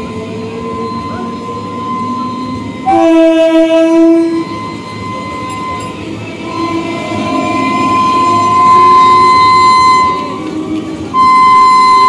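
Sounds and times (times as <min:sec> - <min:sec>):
train horn blast: 0:01.0 - 0:05.3, 0:06.5 - 0:10.5
steady background rumble: 0:04.5 - 0:12.0.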